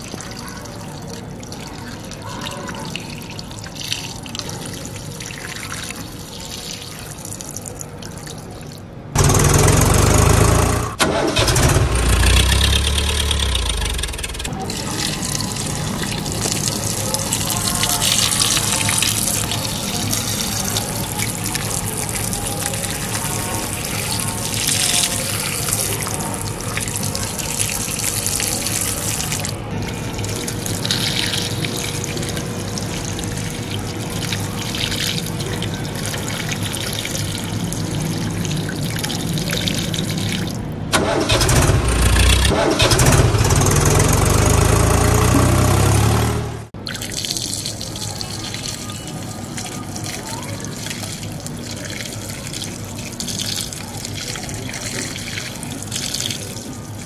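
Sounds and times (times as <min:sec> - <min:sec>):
low engine rumble: 0:09.2 - 0:46.8.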